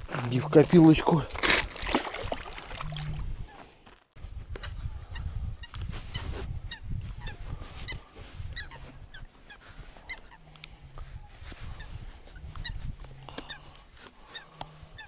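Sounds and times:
birds calling: 0:05.0 - 0:15.0.

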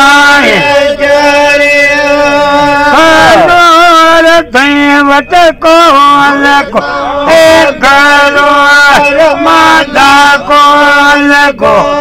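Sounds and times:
men singing a chant: 0:00.0 - 0:12.0.

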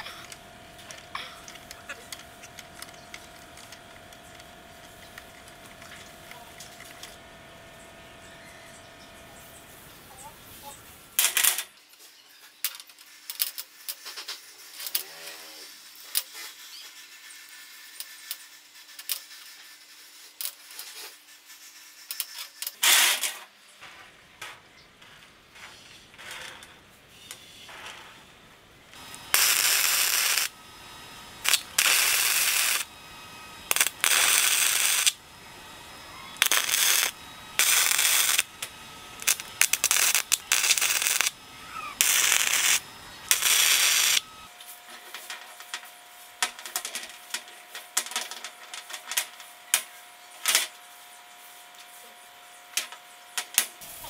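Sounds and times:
electric arc welding bursts: 0:21.4 - 0:23.5, 0:28.9 - 0:44.5, 0:53.6 - 0:54.0.

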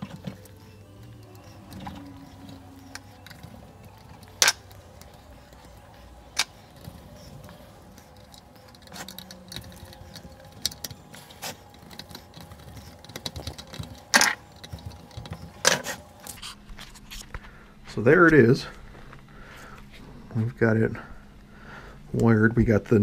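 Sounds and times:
screwdriver clinking on metal parts: 0:00.0 - 0:16.4.

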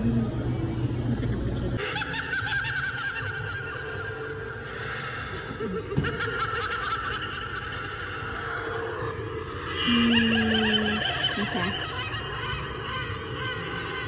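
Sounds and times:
doll prop giggling: 0:01.8 - 0:04.6, 0:05.5 - 0:08.9, 0:09.7 - 0:14.0.

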